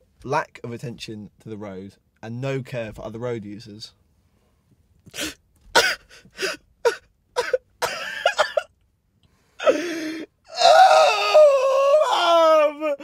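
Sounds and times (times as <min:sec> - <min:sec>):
man sobbing: 0:05.1 - 0:08.7, 0:09.6 - 0:13.0
man wailing: 0:10.5 - 0:13.0.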